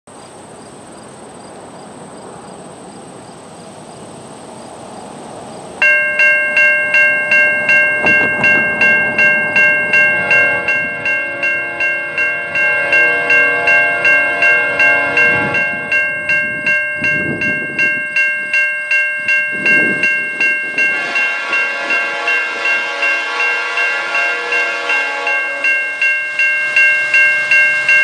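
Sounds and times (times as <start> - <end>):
freight train rumbling: 0.1 - 28.0
low chord of steady tones: 5.7 - 28.0
crossing bell ringing: 5.8 - 28.0.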